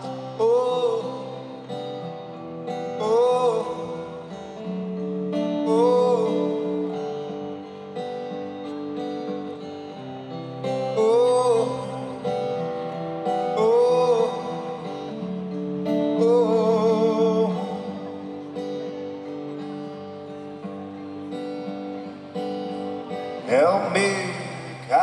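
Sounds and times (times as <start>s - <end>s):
man singing wordless notes: 0.0s - 1.7s, 2.9s - 4.4s, 5.6s - 7.0s, 10.9s - 12.4s, 13.2s - 15.2s, 15.8s - 18.5s, 23.3s - 25.0s
acoustic guitar chords: 0.0s - 25.0s.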